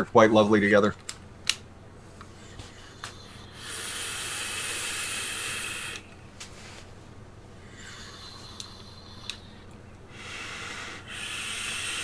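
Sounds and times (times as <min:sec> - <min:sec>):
e-cigarette coil hissing: 0:03.0 - 0:06.1, 0:10.1 - 0:12.0.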